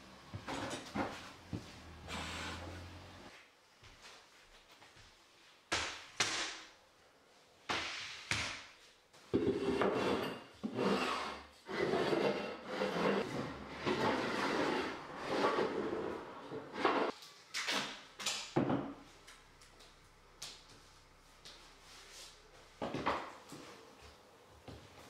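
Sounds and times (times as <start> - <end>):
scraping on wooden floorboards: 9.3 - 17.1.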